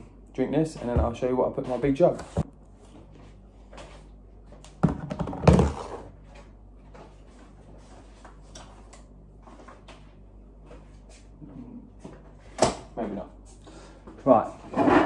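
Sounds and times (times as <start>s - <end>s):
plastic tubs knocking on countertop: 4.8s - 6.0s.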